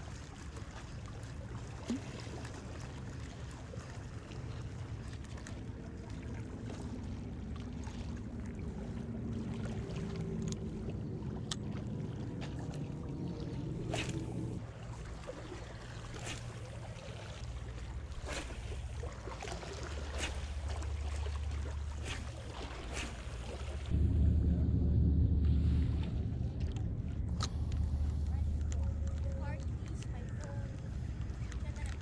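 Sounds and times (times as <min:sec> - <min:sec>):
steady low hum: 0:02.6 - 0:32.0
sea water washing against rocks: 0:09.0 - 0:23.9.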